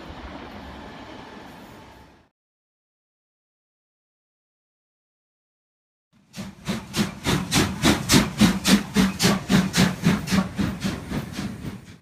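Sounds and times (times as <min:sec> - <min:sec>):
steam locomotive chuffing: 0:06.2 - 0:12.0.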